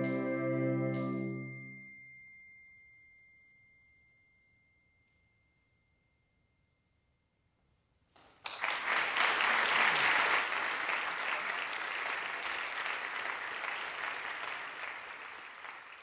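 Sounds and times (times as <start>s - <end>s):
audience applauding: 8.2s - 16.0s.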